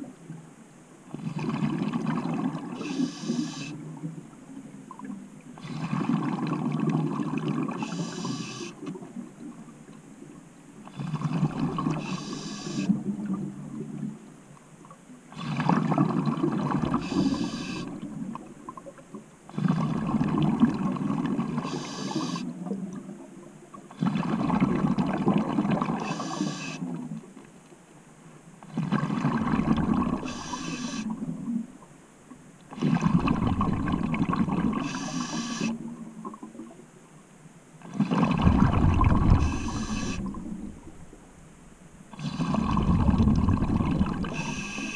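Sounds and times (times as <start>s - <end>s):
bubbles gurgling underwater: 1.1s - 2.9s, 5.0s - 8.1s, 11.0s - 12.3s, 15.4s - 21.9s, 22.5s - 27.2s, 28.7s - 31.7s, 32.8s - 36.8s, 37.9s - 41.2s, 42.2s - 44.9s
diver breathing through regulator: 2.8s - 3.8s, 7.8s - 8.8s, 10.9s - 13.0s, 16.9s - 18.0s, 21.5s - 22.5s, 25.9s - 26.8s, 30.1s - 31.2s, 34.7s - 35.8s, 38.7s - 40.5s, 42.2s - 43.3s, 44.2s - 44.9s.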